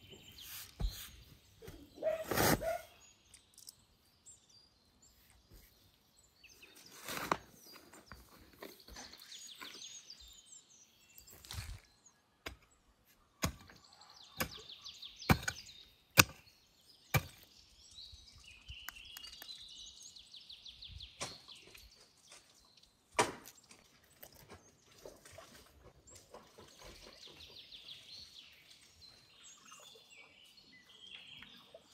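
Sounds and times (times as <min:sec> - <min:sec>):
spade chopping into stony soil: 0:13.4 - 0:13.8, 0:14.4 - 0:16.5, 0:17.1 - 0:17.5, 0:21.2 - 0:21.5, 0:23.2 - 0:23.6.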